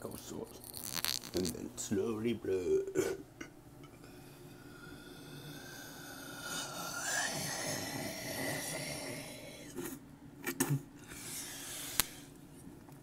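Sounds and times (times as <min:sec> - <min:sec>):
breath blown through pursed lips: 0:04.0 - 0:09.9, 0:11.0 - 0:12.4.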